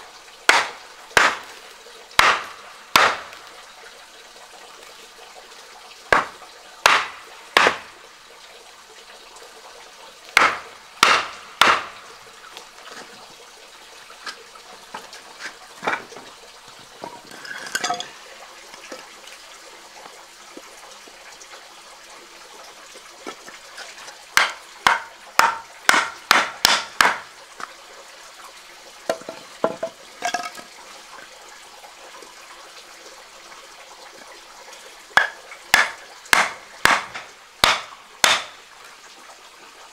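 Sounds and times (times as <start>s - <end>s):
sharp knocks from hard strikes: 0.5s - 1.5s, 2.2s - 3.3s, 6.1s - 7.9s, 10.4s - 12.0s, 24.4s - 27.3s, 35.2s - 38.6s.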